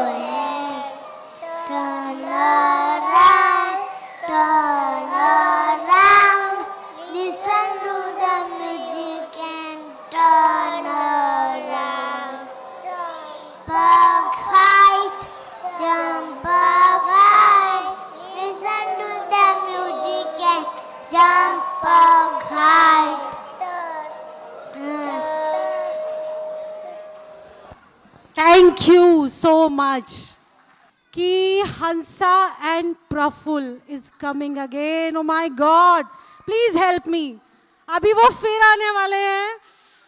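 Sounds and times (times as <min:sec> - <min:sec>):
young children singing: 0:00.0 - 0:27.7.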